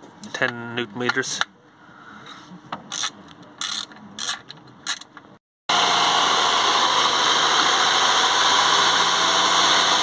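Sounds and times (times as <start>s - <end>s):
car engine running: 5.7s - 10.0s.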